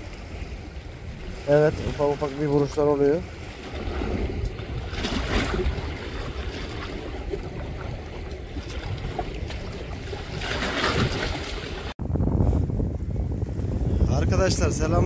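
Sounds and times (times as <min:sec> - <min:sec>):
sea waves washing: 0:00.0 - 0:12.0
wind buffeting microphone: 0:00.0 - 0:15.0.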